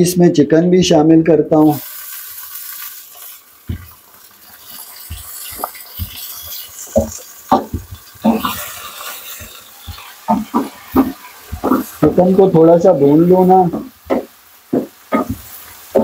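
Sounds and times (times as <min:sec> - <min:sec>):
chicken sizzling in hot oil: 0:01.5 - 0:16.0
wooden spoon knocking against pot: 0:07.0 - 0:08.4, 0:13.7 - 0:16.0.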